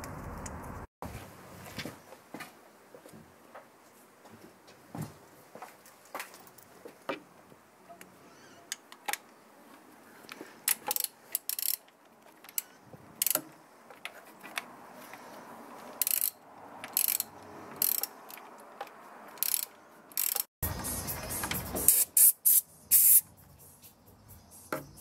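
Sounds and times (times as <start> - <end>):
hand tools ratcheting: 10.6 - 14.6, 16.0 - 20.5
aerosol can spraying: 21.4 - 23.2.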